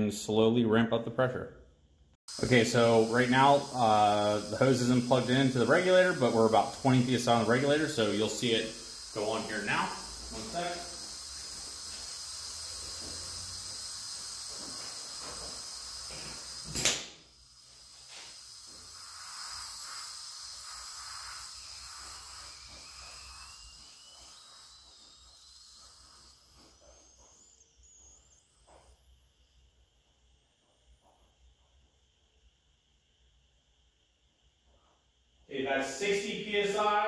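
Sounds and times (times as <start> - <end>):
compressed air hissing: 2.3 - 32.0
sharp valve click: 2.5 - 17.2.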